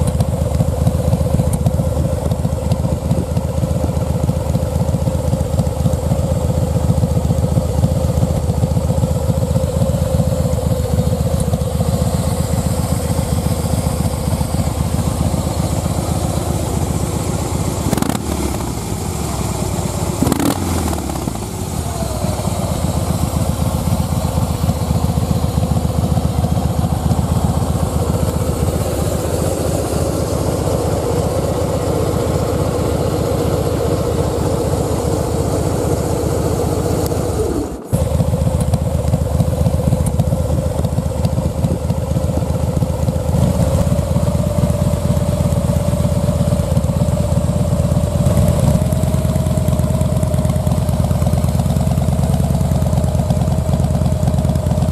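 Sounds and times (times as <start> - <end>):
motorcycle engine idling: 0.0 - 54.9.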